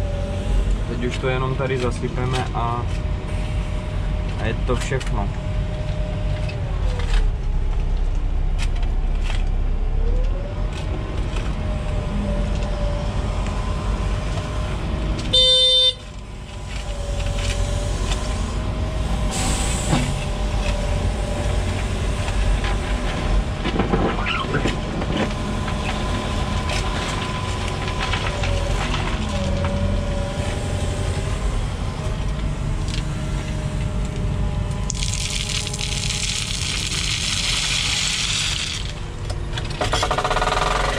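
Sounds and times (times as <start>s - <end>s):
excavator engine and hydraulics: 0.0s - 40.9s
hydraulic whine: 1.5s - 40.9s
horn blast: 15.3s - 16.0s.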